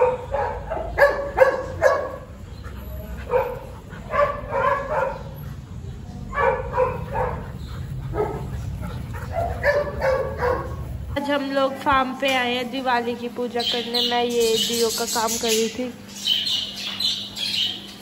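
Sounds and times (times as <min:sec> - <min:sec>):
dogs barking: 0:00.0 - 0:11.2.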